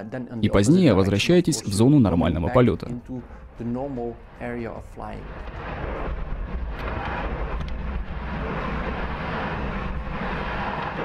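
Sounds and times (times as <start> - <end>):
roar of rushing air: 5.2 - 11.0.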